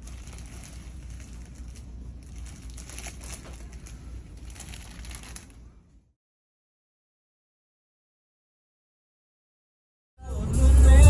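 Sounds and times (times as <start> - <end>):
crackling and rustling: 0.0 - 6.0
steady low rumble: 0.0 - 6.1.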